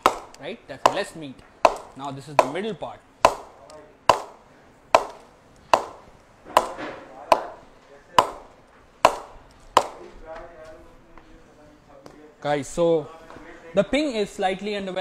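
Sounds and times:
cricket ball knocking on bat: 0:00.0 - 0:10.2.

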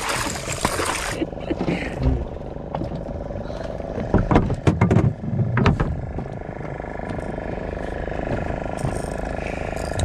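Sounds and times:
outboard motor idling: 0:00.0 - 0:10.0.

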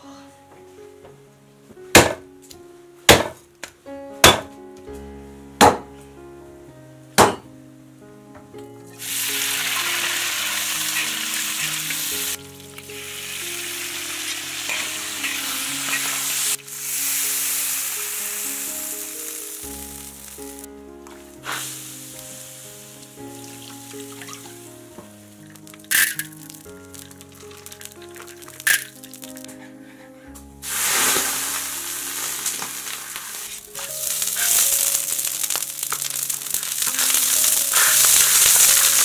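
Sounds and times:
background music: 0:00.0 - 0:39.0
meat sizzling in a wok: 0:09.0 - 0:20.7, 0:21.4 - 0:24.6, 0:25.4 - 0:29.4, 0:30.6 - 0:39.0.

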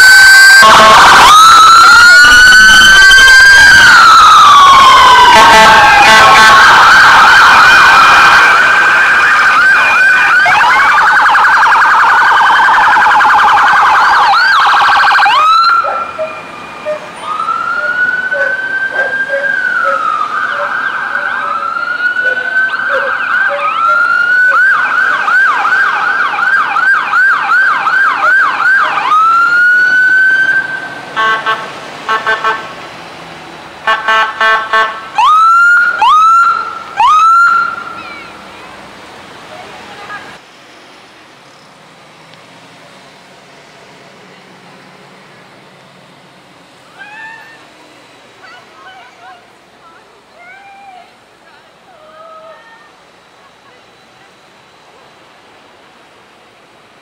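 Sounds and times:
police sirens wailing and yelping: 0:00.0 - 0:32.6, 0:33.8 - 0:38.9, 0:46.8 - 0:49.5
stuttering siren blasts: 0:00.0 - 0:32.6.

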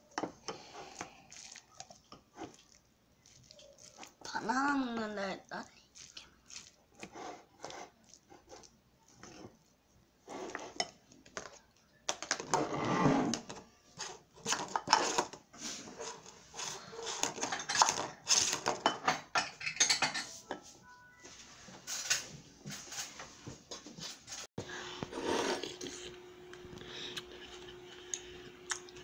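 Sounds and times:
spoon scraping a bowl: 0:10.3 - 0:11.0, 0:12.5 - 0:20.7, 0:25.0 - 0:26.2.

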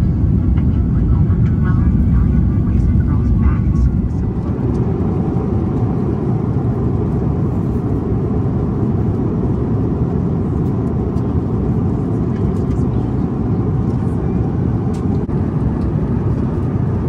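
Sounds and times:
jet engines and airflow rumble: 0:00.0 - 0:17.0.

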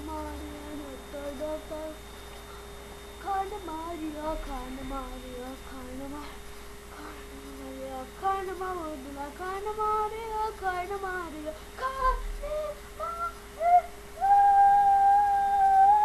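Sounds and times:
boy singing in a high voice: 0:03.2 - 0:06.4, 0:07.0 - 0:16.0.

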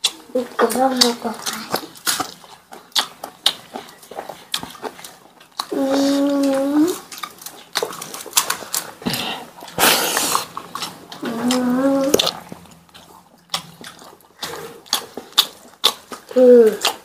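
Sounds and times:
chewing: 0:00.0 - 0:17.0.

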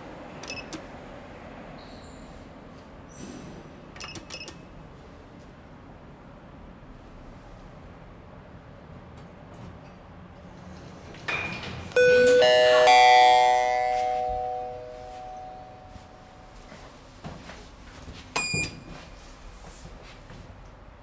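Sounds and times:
short high beep: 0:12.0 - 0:16.6
elevator two-note chime: 0:12.0 - 0:16.7.

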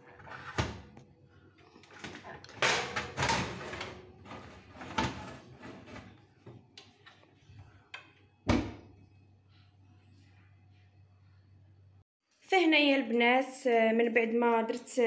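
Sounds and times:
metal tray scraping oven rack: 0:00.0 - 0:00.8, 0:02.1 - 0:06.2.

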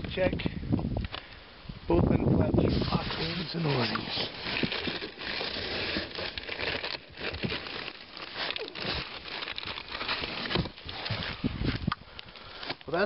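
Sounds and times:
plastic bag and cardboard rustling: 0:02.5 - 0:13.0.

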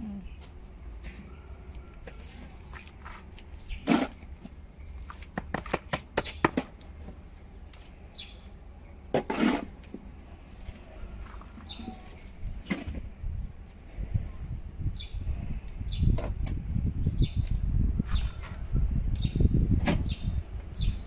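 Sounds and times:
scoop scraping into soil: 0:02.1 - 0:04.3, 0:09.1 - 0:09.8.

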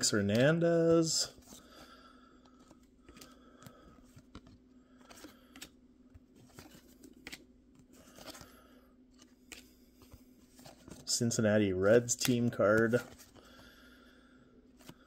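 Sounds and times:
low steady hum: 0:00.0 - 0:15.0
paper cards flicking and sliding: 0:02.6 - 0:05.8, 0:06.4 - 0:08.6, 0:09.2 - 0:11.1, 0:12.0 - 0:13.5.

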